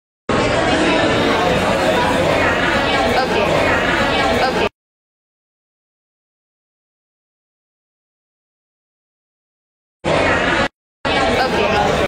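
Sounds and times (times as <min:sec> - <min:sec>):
indoor public space voices: 0:00.3 - 0:04.8, 0:10.0 - 0:12.0.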